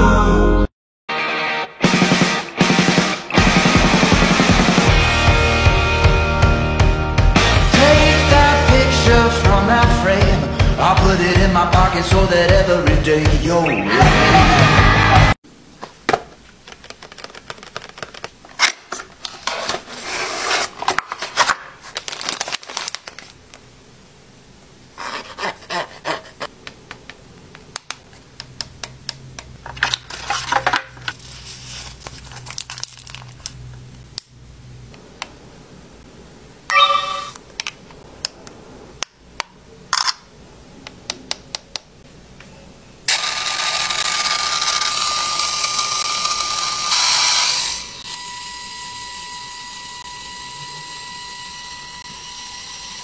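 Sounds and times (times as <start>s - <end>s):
packaging rustling and tearing: 16.5s - 23.4s, 29.8s - 33.6s
chime-like tone: 36.7s - 37.3s
mechanical whir: 43.1s - 53.0s.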